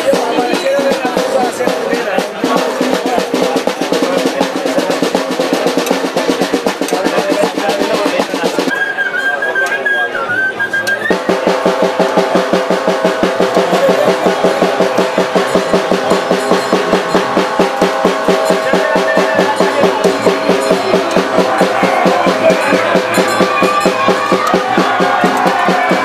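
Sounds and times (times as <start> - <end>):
music with fast driving drums: 0.0 - 8.7, 11.1 - 26.0
held high note: 11.1 - 26.0.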